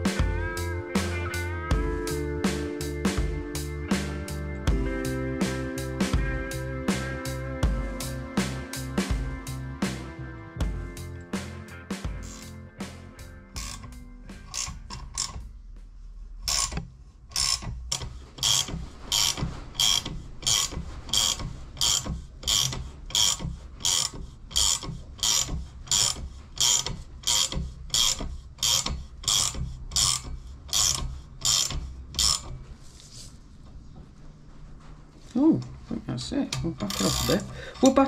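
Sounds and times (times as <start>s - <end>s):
ratchet wrench clicking: 12.1s - 12.6s, 13.6s - 15.5s, 16.4s - 32.5s, 36.8s - 37.6s.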